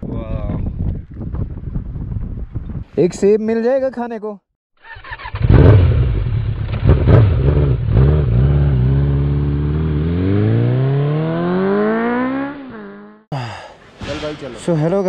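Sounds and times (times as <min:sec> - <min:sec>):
motorcycle engine revving: 0:04.8 - 0:13.3.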